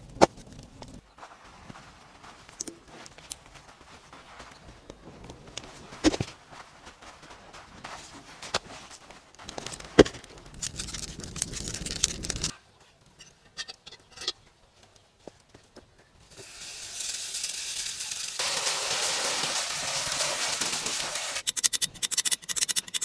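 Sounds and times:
crackling embers: 2.3 - 15.5, 16.1 - 21.6
water hissing in hot cauldron: 16.3 - 21.4.

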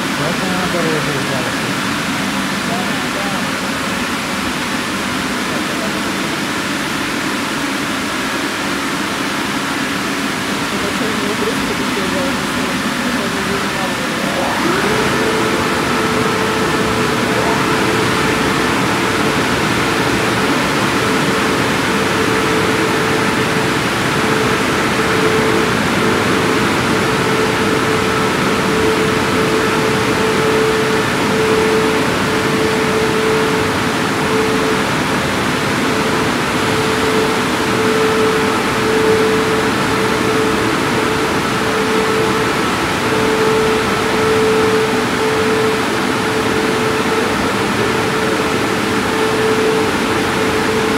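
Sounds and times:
car wash machinery and water: 0.0 - 50.9
mid-pitched hum: 0.0 - 50.9.

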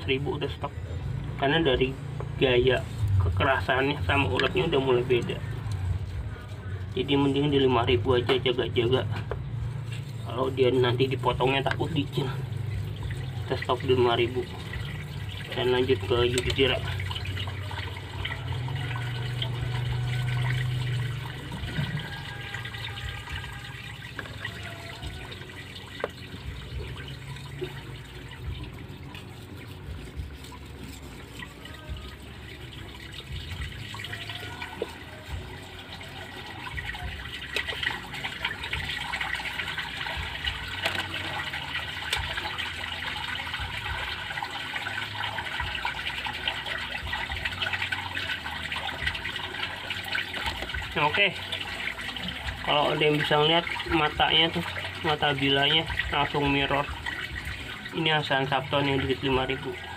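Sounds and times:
blade scraping on wet whetstone: 9.7 - 55.7.

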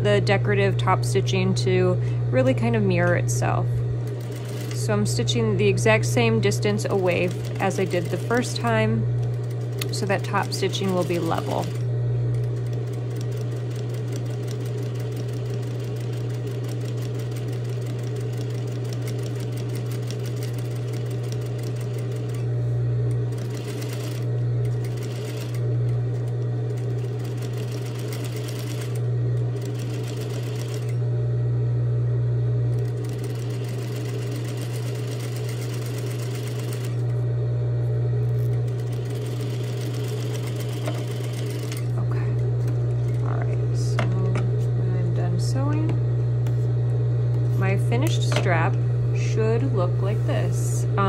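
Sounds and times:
motor hum: 0.0 - 51.0
sewing machine needle strokes: 4.0 - 4.9, 6.8 - 11.8, 23.3 - 25.6, 26.7 - 29.0, 29.6 - 31.0, 32.8 - 37.1, 38.4 - 41.9.

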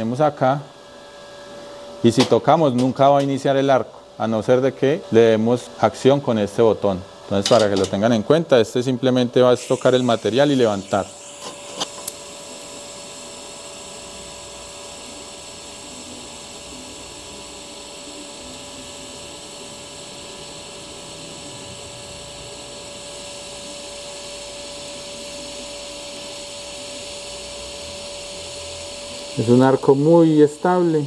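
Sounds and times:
welding arc hissing: 9.4 - 24.5.

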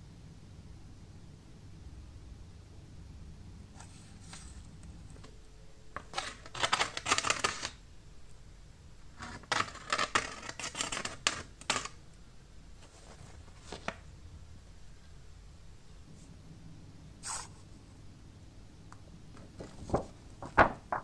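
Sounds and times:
faint scrape: 17.2 - 17.7.

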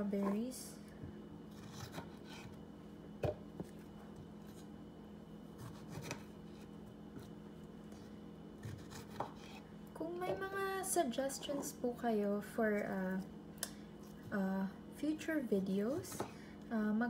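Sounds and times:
faint steady hum: 0.0 - 17.0.

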